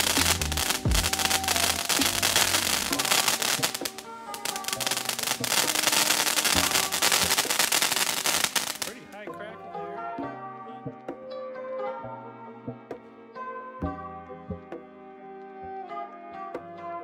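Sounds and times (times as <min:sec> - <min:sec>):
firework fountain crackling: 0:00.0 - 0:09.3
background music: 0:00.0 - 0:17.0.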